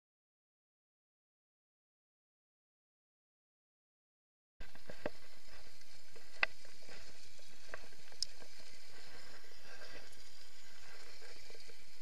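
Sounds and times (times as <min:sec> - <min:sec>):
sharp clicks: 0:07.7 - 0:08.5.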